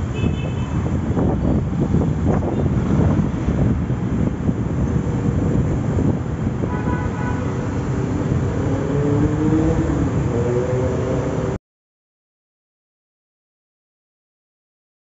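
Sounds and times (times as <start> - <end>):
traffic rumble: 0.0 - 11.6
engine revving: 7.8 - 11.6.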